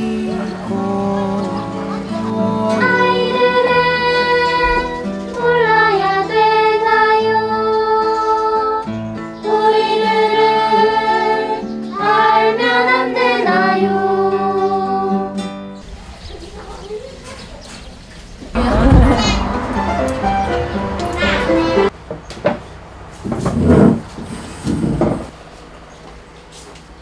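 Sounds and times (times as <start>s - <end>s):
children singing: 0.0s - 15.6s, 18.5s - 21.9s
instrumental accompaniment: 18.6s - 21.9s.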